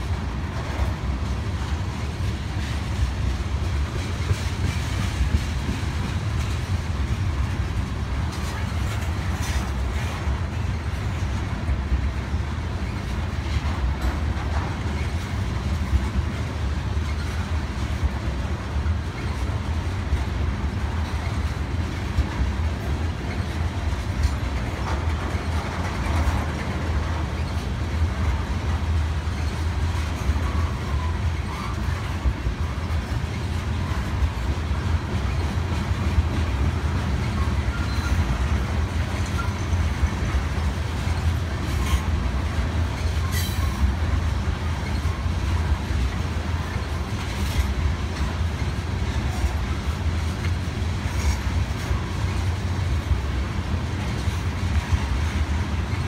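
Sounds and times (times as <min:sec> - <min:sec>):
clicking over rail joints: 0:00.0 - 0:56.0
train wheels rumbling on rails: 0:00.0 - 0:56.0
high wheel squeals: 0:37.3 - 0:38.3.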